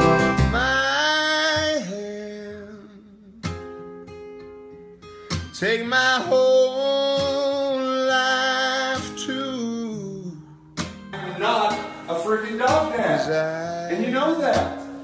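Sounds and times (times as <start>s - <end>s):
man singing: 0.0s - 3.7s, 5.5s - 10.6s, 11.2s - 15.0s
acoustic guitar strumming: 0.0s - 15.0s.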